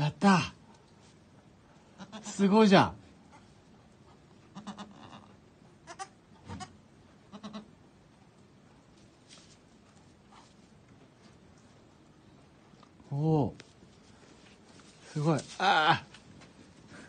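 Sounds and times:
goats bleating softly: 0:01.9 - 0:02.5, 0:04.5 - 0:07.8.

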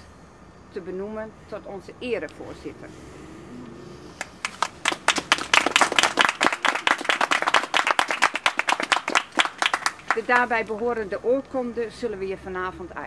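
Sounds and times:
small group clapping: 0:04.2 - 0:10.8.

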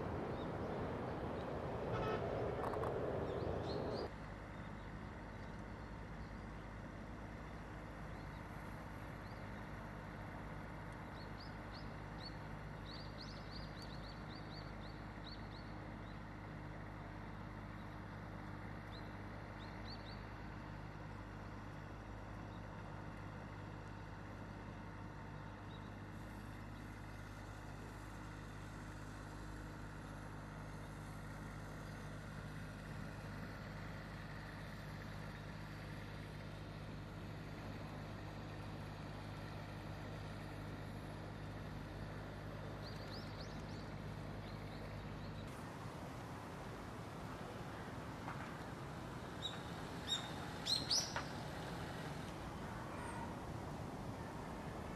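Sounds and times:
low engine hum: 0:00.0 - 0:54.9
bird chirping: 0:00.2 - 0:04.1, 0:49.4 - 0:51.4.

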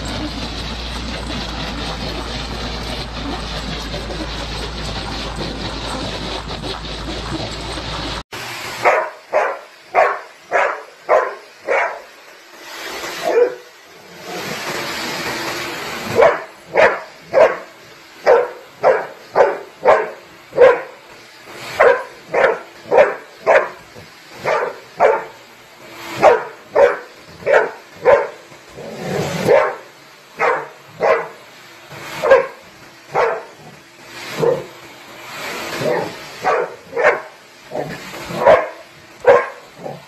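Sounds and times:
dog barking sharply: 0:08.8 - 0:12.0, 0:16.2 - 0:17.7, 0:18.3 - 0:20.9, 0:21.8 - 0:23.8, 0:26.2 - 0:28.4, 0:29.4 - 0:29.8, 0:30.4 - 0:31.4, 0:32.2 - 0:33.5, 0:35.8 - 0:37.3, 0:38.3 - 0:40.0.

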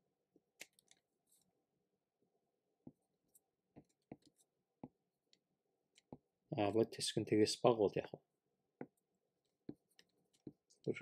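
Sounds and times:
stylus tapping on tablet: 0:03.8 - 0:05.0.

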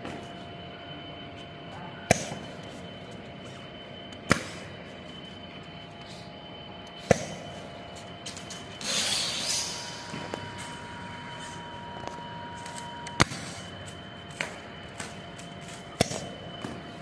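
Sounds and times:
faint steady machine whine: 0:00.0 - 0:17.0
machine hiss: 0:08.4 - 0:11.9.

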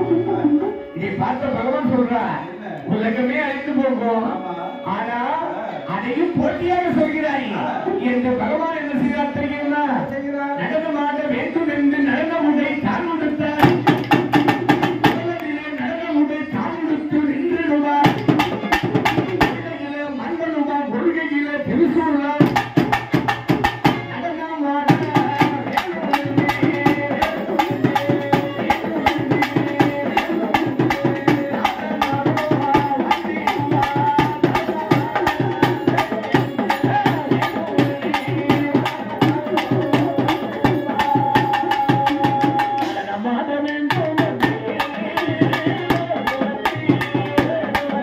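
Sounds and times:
drums: 0:12.1 - 0:15.6, 0:16.5 - 0:19.8, 0:21.6 - 0:48.0.

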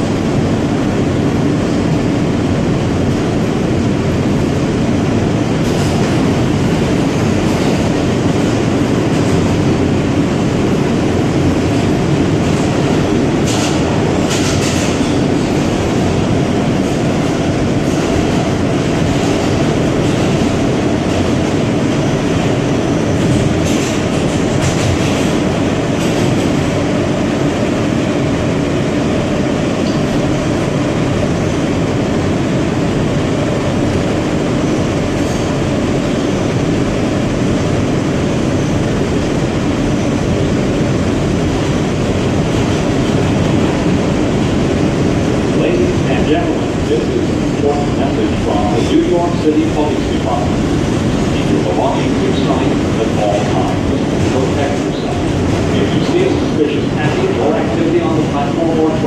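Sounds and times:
subway wheels rumbling on rail: 0:00.0 - 0:59.0.

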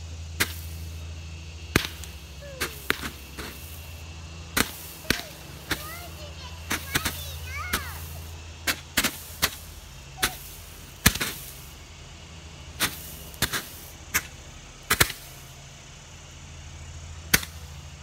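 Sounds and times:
steady low hum: 0:00.0 - 0:18.0
firework bangs: 0:01.7 - 0:11.7, 0:12.8 - 0:15.5.

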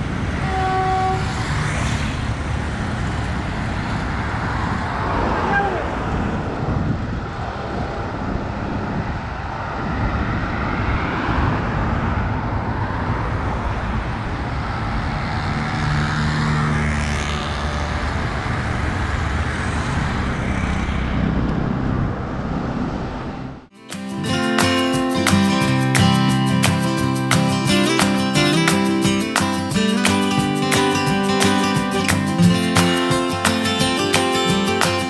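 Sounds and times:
vehicle passing by: 0:00.0 - 0:23.7
road traffic rumble: 0:00.0 - 0:35.0.

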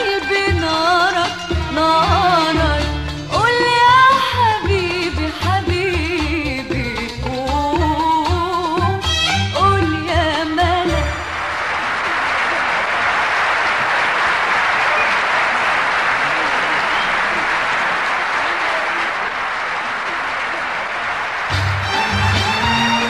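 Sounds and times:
person singing: 0:00.0 - 0:09.0
orchestra playing: 0:10.8 - 0:11.7, 0:21.5 - 0:23.0
audience applauding: 0:11.0 - 0:23.0.

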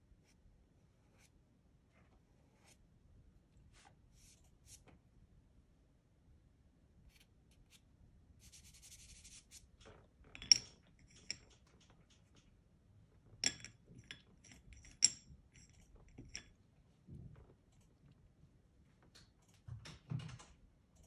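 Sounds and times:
pastel sticks clinking on porcelain: 0:10.3 - 0:12.4, 0:13.4 - 0:16.6.

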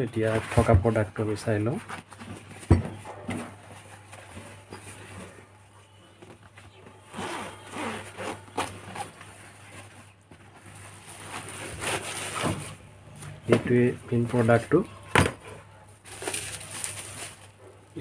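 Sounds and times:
fabric bag zip opening: 0:07.1 - 0:09.2.

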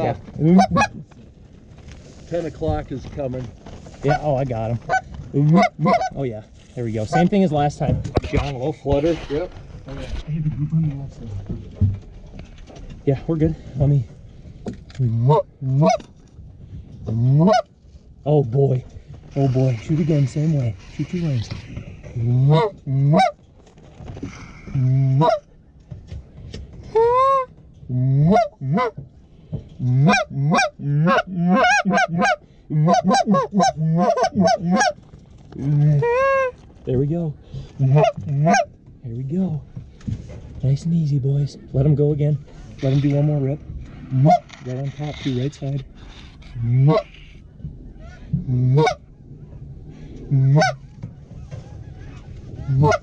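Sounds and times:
goose call honks and clucks: 0:00.0 - 0:01.1, 0:04.0 - 0:06.3, 0:07.0 - 0:07.4, 0:15.1 - 0:16.1, 0:17.1 - 0:17.7, 0:19.3 - 0:23.4, 0:24.2 - 0:25.5, 0:26.9 - 0:29.0, 0:29.8 - 0:35.0, 0:35.6 - 0:36.6, 0:37.8 - 0:38.7, 0:42.6 - 0:47.4, 0:48.0 - 0:49.6, 0:50.3 - 0:53.0
goose honking: 0:00.4 - 0:01.0, 0:04.0 - 0:06.2, 0:30.0 - 0:35.0, 0:35.9 - 0:36.6, 0:37.8 - 0:38.7, 0:48.0 - 0:49.2, 0:50.3 - 0:53.0
flock of geese calling: 0:50.4 - 0:53.0.

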